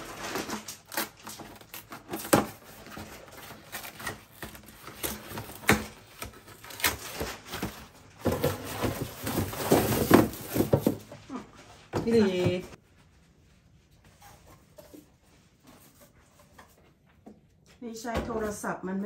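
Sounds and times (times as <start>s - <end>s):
boxes knocking in freezer drawer: 7.1s - 11.2s.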